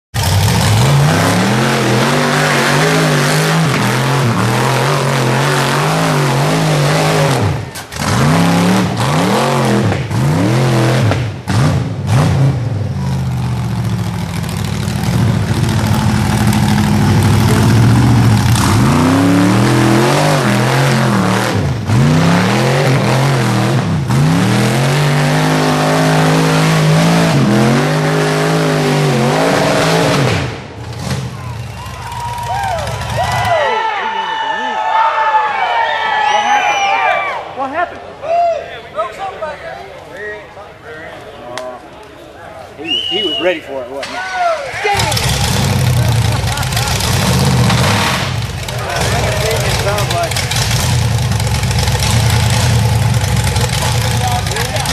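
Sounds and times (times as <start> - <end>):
buggy engine revving hard: 0.1 - 33.5, 44.9 - 54.9.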